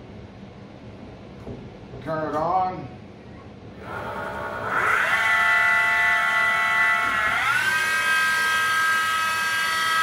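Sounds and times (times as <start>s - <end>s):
milling machine spindle whine: 3.8s - 10.0s.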